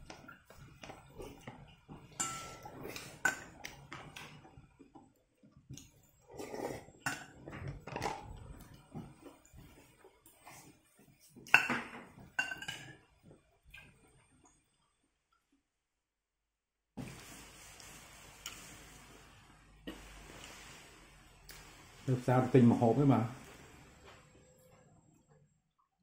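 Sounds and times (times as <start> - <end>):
soft eating sounds: 0.0 - 11.5, 17.1 - 22.3
metal spoon clinking on ceramic bowl: 2.2 - 2.7.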